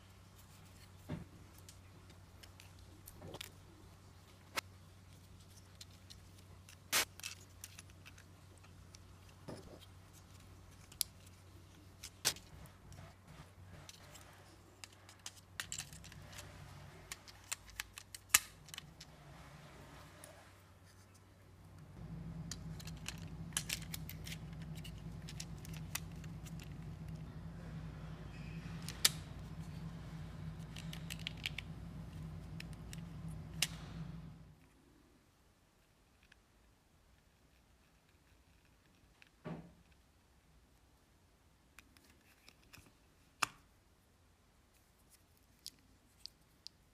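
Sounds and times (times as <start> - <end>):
steady low hum: 18.3 - 34.7.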